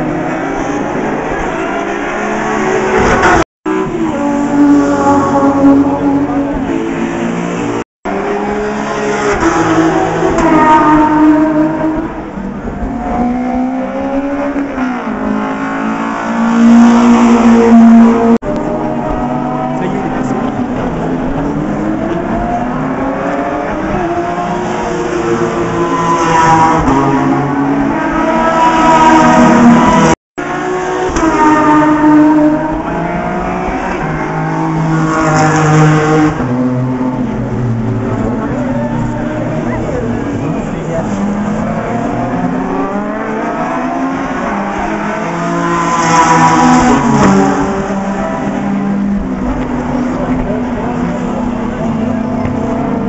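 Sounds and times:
race car engines accelerating: 0.0 - 53.0.

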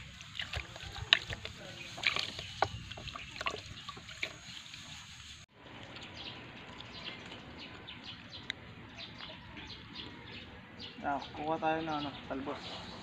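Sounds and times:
small water splashes and drips: 0.0 - 8.6
birds chirping: 0.0 - 13.0.

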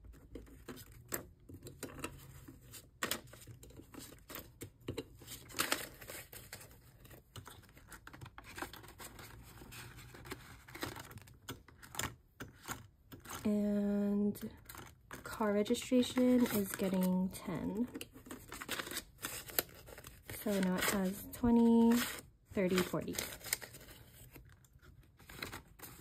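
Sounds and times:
banknotes rustling and crinkling: 0.0 - 13.5, 14.3 - 26.0
pages turning: 18.0 - 26.0.

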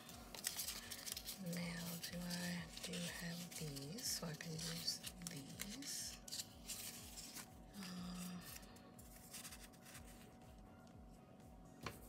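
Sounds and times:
paper sheets rustling: 0.3 - 7.5, 9.2 - 10.3.

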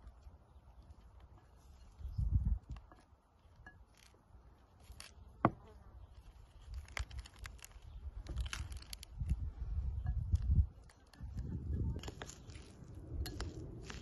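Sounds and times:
pomegranate seeds crackling: 0.0 - 14.0
low rumble: 9.2 - 14.0.

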